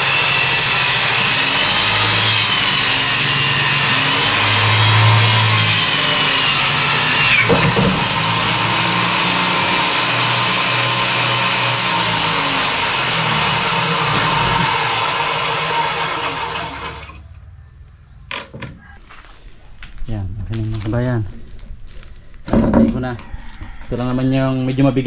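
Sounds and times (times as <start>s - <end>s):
table saw cutting plywood: 0.0s - 17.3s.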